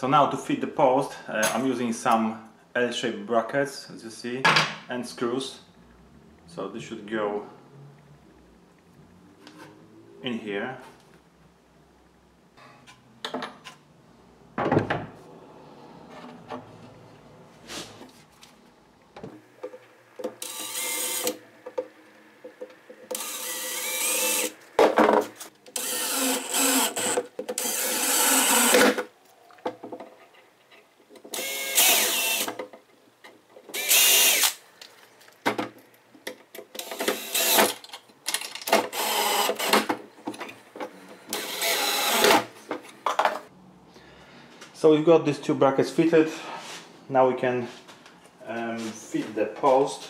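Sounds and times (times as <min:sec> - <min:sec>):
cordless drill drilling into wood: 0:20.4 - 0:21.4, 0:23.1 - 0:24.6, 0:25.8 - 0:29.0, 0:31.3 - 0:32.5, 0:33.7 - 0:34.6, 0:36.8 - 0:37.7, 0:38.9 - 0:39.8, 0:41.3 - 0:42.4.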